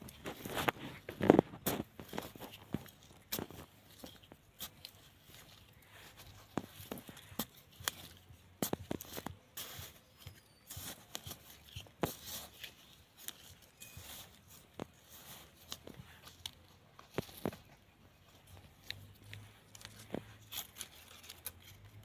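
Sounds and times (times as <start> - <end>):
metal hand tool digging soil: 0.0 - 22.0.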